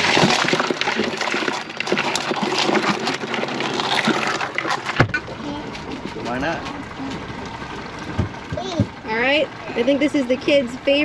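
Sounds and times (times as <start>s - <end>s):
crab shells clicking and scraping: 0.0s - 8.5s.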